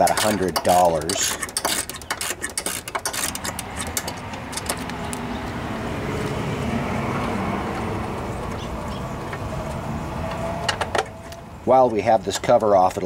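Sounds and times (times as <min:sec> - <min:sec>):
socket ratchet clicking: 0:00.0 - 0:05.2
engine drone: 0:01.1 - 0:11.7.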